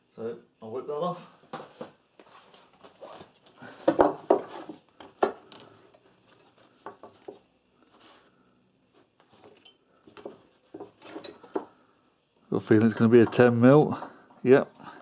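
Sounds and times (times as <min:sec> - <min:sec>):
metal hand tools clinking: 0:11.0 - 0:11.8.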